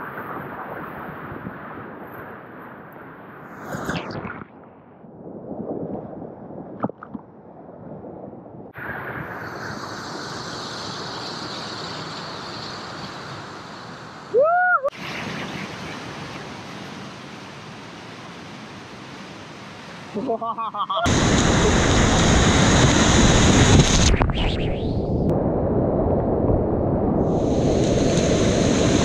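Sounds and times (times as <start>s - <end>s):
person shouting: 14.4s - 14.9s.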